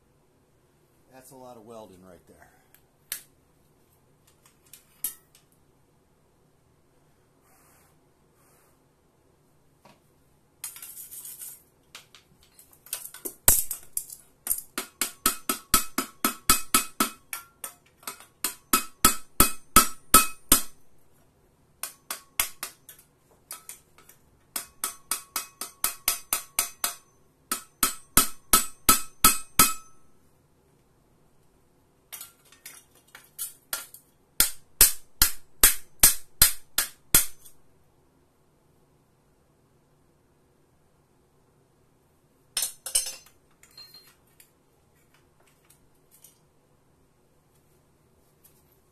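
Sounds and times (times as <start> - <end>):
hammer striking steel on anvil: 14.8 - 20.8, 21.8 - 23.8, 24.5 - 30.1, 33.7 - 37.5, 42.6 - 44.0.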